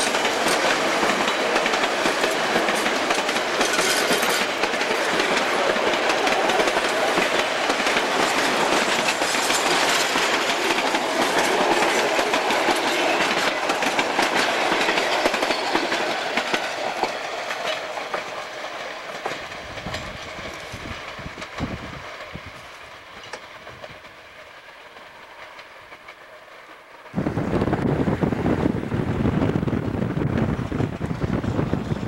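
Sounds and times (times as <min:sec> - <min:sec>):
wheels clicking over rail joints: 0:00.0 - 0:27.2
train cars rolling past: 0:00.0 - 0:32.0
wind noise on microphone: 0:19.6 - 0:22.7, 0:27.1 - 0:32.0.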